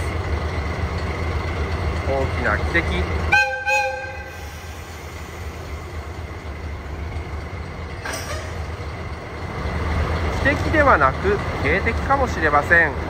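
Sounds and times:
diesel engine idling: 0:00.0 - 0:13.0
locomotive horn blasts: 0:03.3 - 0:04.4
metal clank: 0:08.0 - 0:08.7.

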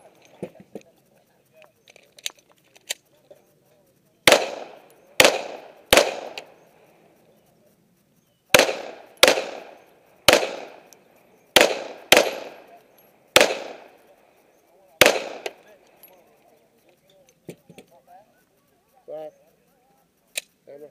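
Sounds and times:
pistol shots with echo: 0:04.2 - 0:06.6, 0:08.5 - 0:14.1, 0:15.0 - 0:15.8.

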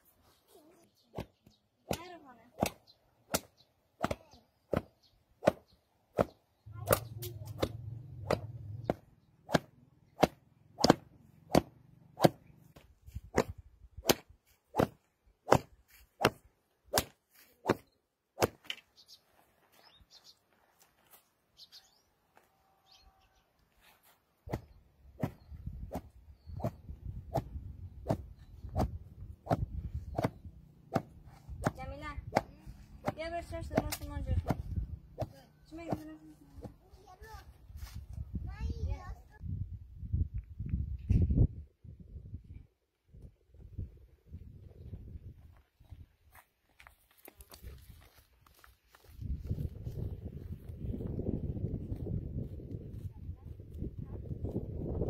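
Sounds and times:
sticks beating wool: 0:06.2 - 0:12.5.

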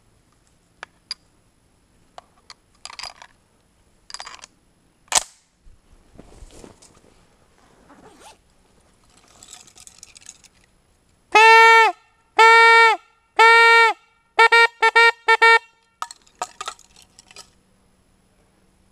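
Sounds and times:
faint rustling: 0:05.8 - 0:10.7
hunting horn blasts: 0:11.3 - 0:16.0.

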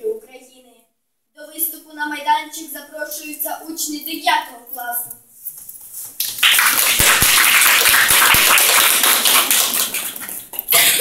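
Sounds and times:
audience applauding: 0:06.2 - 0:10.5.

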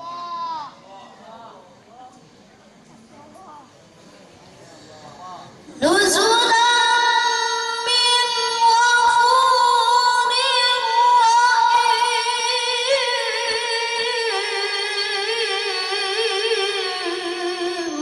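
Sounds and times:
boy reciting melodically: 0:00.0 - 0:01.0, 0:05.6 - 0:18.0.

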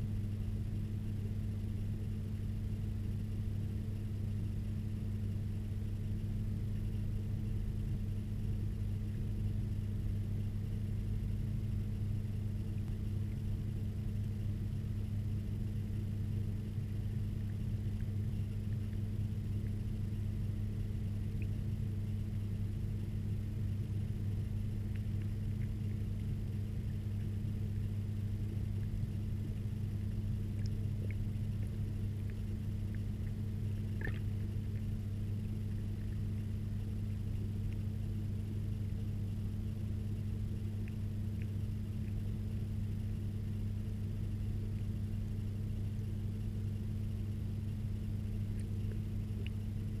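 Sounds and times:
underwater low hum: 0:00.0 - 0:50.0
faint ticks: 0:30.1 - 0:39.4, 0:40.2 - 0:42.9, 0:48.3 - 0:50.0.

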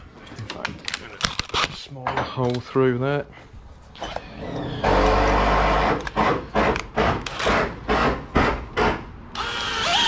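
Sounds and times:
power tool running: 0:09.4 - 0:10.0.

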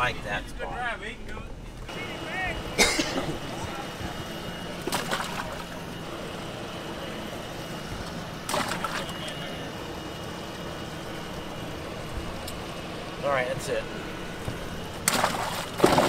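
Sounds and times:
water splashing: 0:04.9 - 0:05.8, 0:08.5 - 0:09.2, 0:15.0 - 0:16.0.

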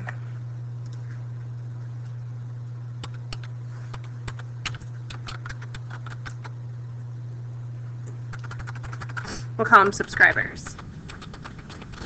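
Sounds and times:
steady low hum: 0:00.0 - 0:12.0
computer keyboard typing: 0:03.0 - 0:06.5, 0:08.3 - 0:09.3, 0:09.9 - 0:12.0.

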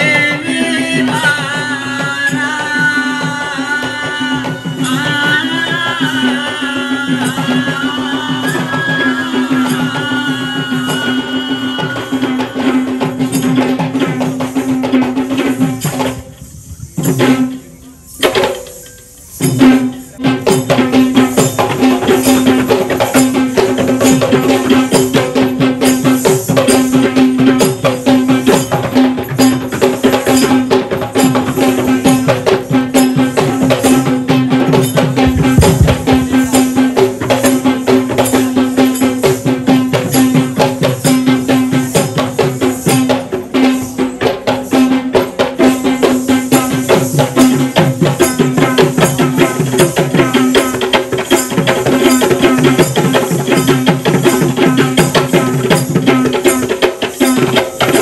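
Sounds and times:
fast hand drumming: 0:19.4 - 0:58.0.

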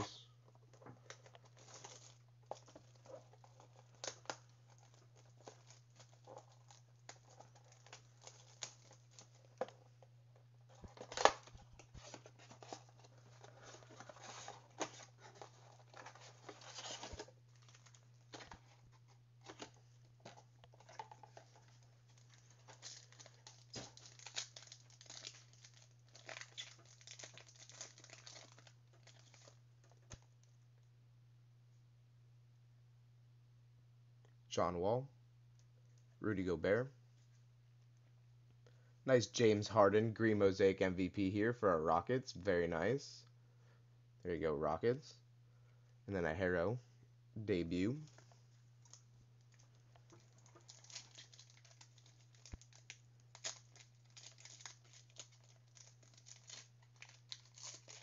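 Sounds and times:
wrappers crinkling: 0:00.0 - 0:30.3, 0:47.9 - 0:58.0
low steady hum: 0:00.0 - 0:58.0
foil packs being torn open: 0:01.2 - 0:09.7, 0:10.8 - 0:18.6, 0:20.8 - 0:30.2, 0:49.6 - 0:58.0.

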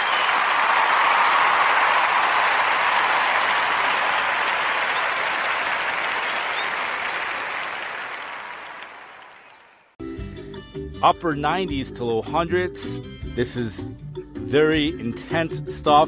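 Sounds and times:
crowd clapping: 0:00.0 - 0:10.0.

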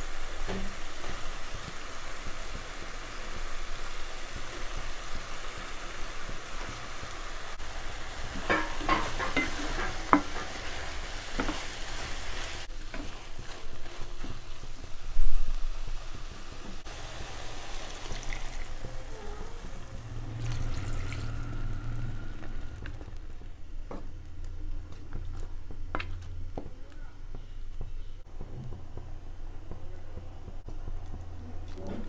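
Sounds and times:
food sizzling in pan: 0:00.0 - 0:23.4.

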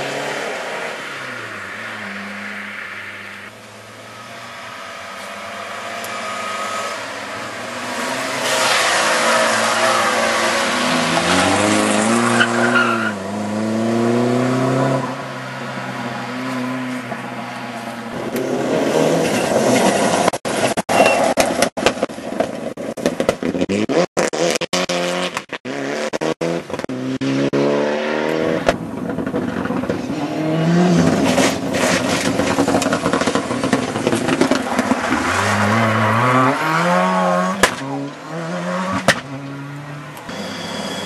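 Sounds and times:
rally car engines revving: 0:03.3 - 0:41.0.

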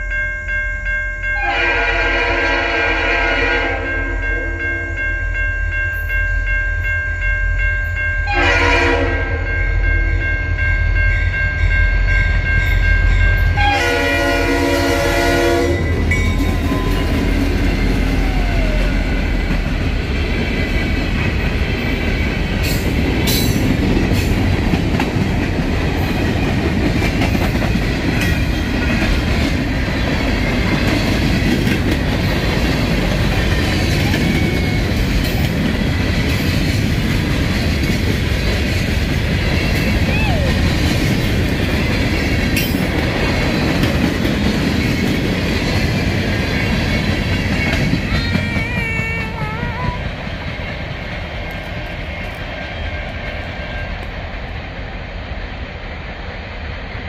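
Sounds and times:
locomotive horn: 0:01.4 - 0:05.0, 0:08.3 - 0:09.5, 0:13.6 - 0:17.2
train wheels rolling on rails: 0:10.1 - 0:57.0.

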